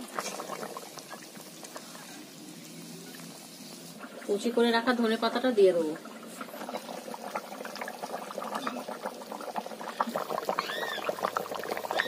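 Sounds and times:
curry bubbling in a pan: 0.0 - 12.0
wood fire crackling: 0.0 - 12.0.

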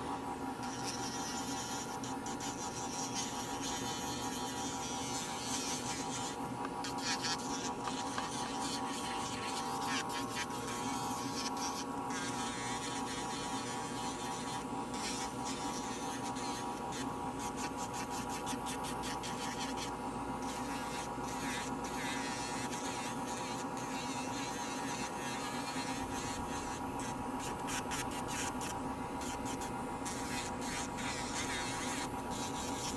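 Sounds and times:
electric nail drill humming: 0.0 - 32.9
drill burr grinding nail: 19.1 - 32.9.

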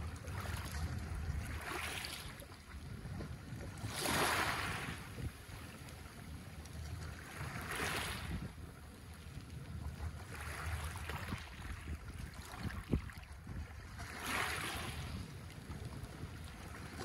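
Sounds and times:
wind rumble on microphone: 0.0 - 17.0
waves washing over pebbles: 3.7 - 5.4, 7.2 - 8.6, 10.2 - 17.0.

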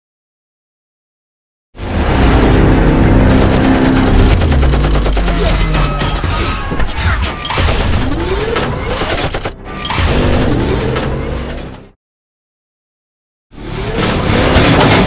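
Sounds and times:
car engine running: 1.8 - 5.8
mechanical clicks and clanks: 3.2 - 11.9.

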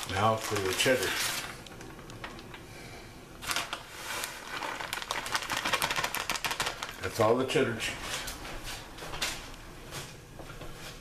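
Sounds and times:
cheese crackling on foil: 0.0 - 2.6, 3.4 - 7.7
plastic bag crinkling: 0.0 - 2.6, 3.4 - 8.3.

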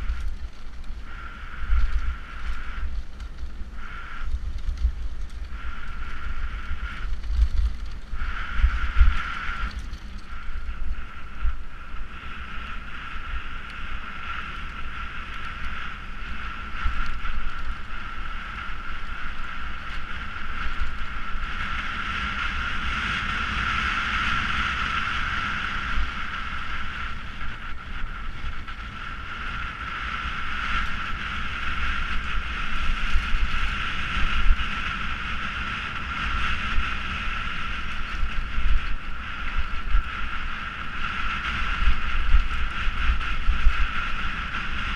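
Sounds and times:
tyre and trail noise: 0.0 - 44.9
wind buffeting microphone: 0.0 - 44.9.

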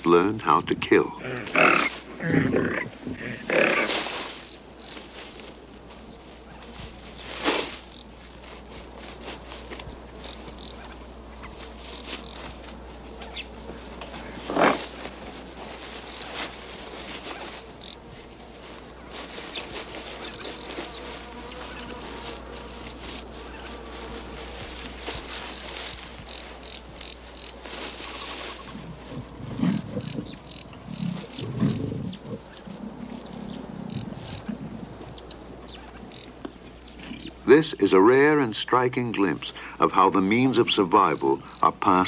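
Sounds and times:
insect chorus: 0.0 - 42.0
loud animal cries: 1.2 - 4.1.

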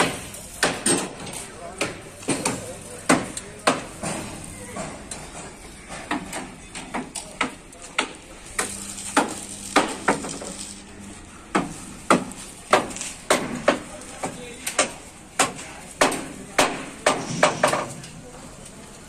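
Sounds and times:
hammer striking: 0.0 - 10.4, 11.5 - 17.9.

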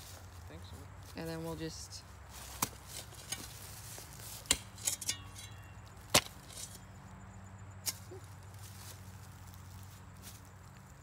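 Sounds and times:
shovel chopping into tree root: 2.5 - 3.6, 4.2 - 5.5, 6.1 - 6.8.

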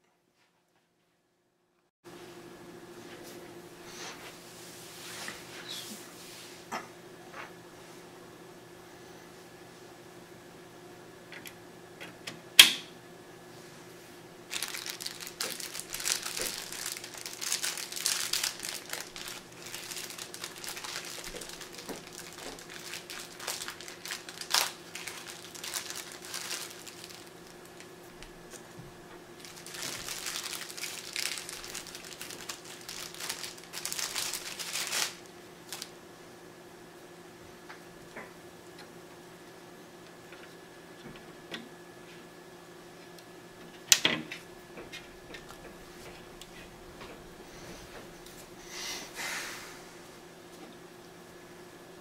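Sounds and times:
packaging crinkling: 14.5 - 28.6, 29.4 - 35.9.

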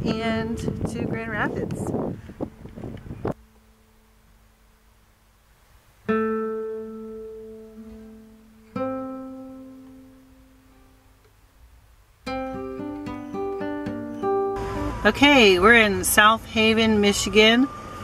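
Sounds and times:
guitar chords ringing: 0.0 - 1.5, 2.4 - 5.0, 6.1 - 11.2, 12.2 - 15.9
plucked guitar notes: 0.0 - 1.5, 2.4 - 4.4, 6.1 - 11.2, 12.2 - 15.2.

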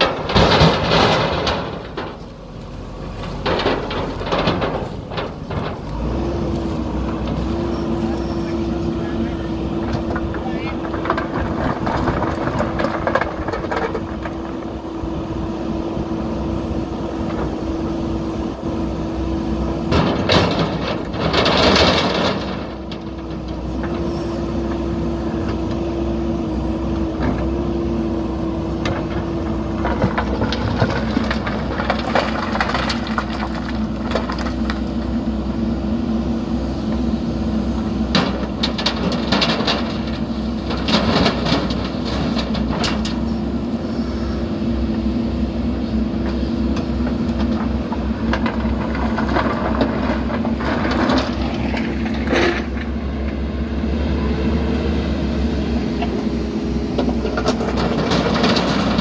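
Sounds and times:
rushing clatter of stones: 0.0 - 15.2, 16.3 - 25.9, 28.6 - 35.5, 37.7 - 43.7, 46.0 - 53.0, 56.9 - 59.0
diesel engine under load: 0.0 - 59.0
rocks knocking: 9.7 - 14.9, 28.8 - 35.2.

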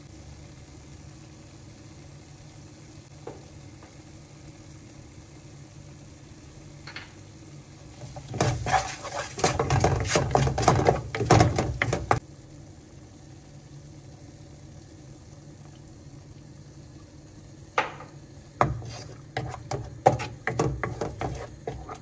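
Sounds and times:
wooden spatula scraping a pan: 7.9 - 12.2, 18.6 - 22.0.

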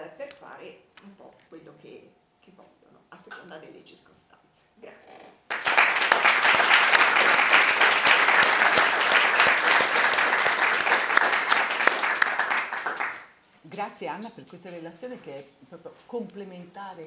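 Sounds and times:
audience applauding: 5.5 - 13.3.

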